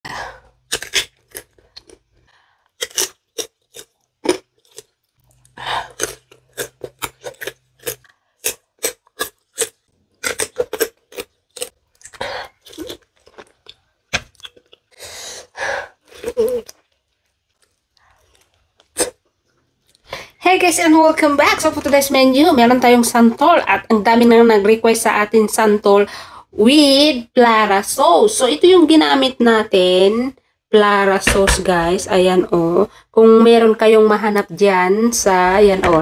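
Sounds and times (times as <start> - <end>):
crunching and chewing: 0.4 - 15.0, 16.0 - 20.1
biting into fruit: 0.6 - 2.1, 2.8 - 14.9.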